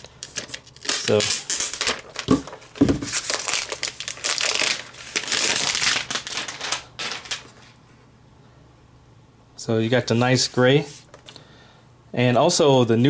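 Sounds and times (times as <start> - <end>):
plastic film peeling and crinkling: 0.0 - 7.8.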